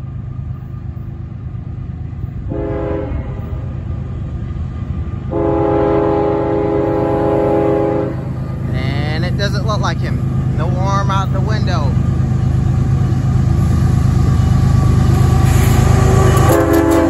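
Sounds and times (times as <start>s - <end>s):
locomotive low rumble: 0.0s - 17.0s
locomotive horn blasts: 2.5s - 3.7s, 5.3s - 8.3s, 16.1s - 17.0s.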